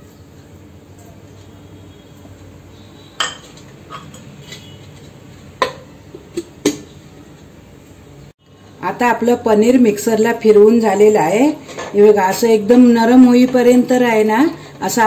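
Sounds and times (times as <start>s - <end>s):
steel jar and lid clinking: 3.2s - 4.8s.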